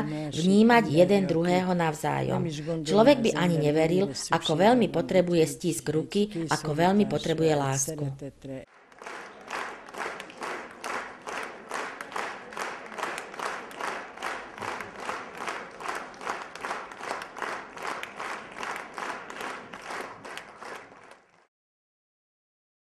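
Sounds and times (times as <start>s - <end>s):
audience clapping rhythmically: 0.0s - 3.5s, 8.7s - 21.5s.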